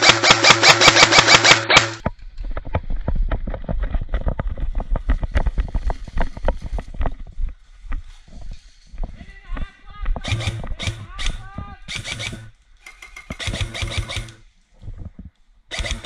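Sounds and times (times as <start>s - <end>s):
footsteps on grass: 4.7s - 12.6s.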